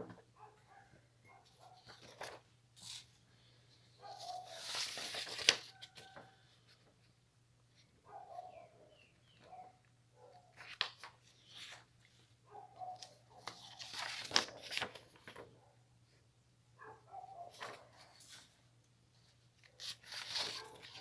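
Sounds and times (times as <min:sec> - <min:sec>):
paper rustling and crackling: 0:01.6 - 0:03.2, 0:04.0 - 0:06.3, 0:10.5 - 0:11.9, 0:12.9 - 0:15.5, 0:17.4 - 0:18.6, 0:19.6 - 0:21.0.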